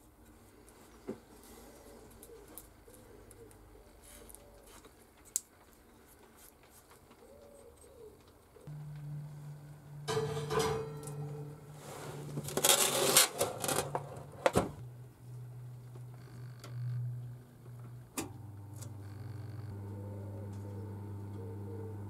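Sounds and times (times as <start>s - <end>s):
steady low hum: 8.6s - 22.0s
oven door shutting: 10.0s - 14.8s
metal clattering and scraping: 10.1s - 14.8s.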